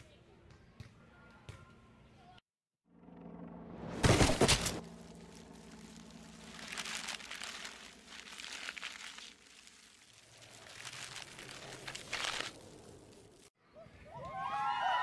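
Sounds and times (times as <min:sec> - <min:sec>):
low steady hum: 0:03.0 - 0:09.9
suitcase bursting open: 0:04.0 - 0:04.8
paper crinkling and rustling: 0:04.0 - 0:13.5.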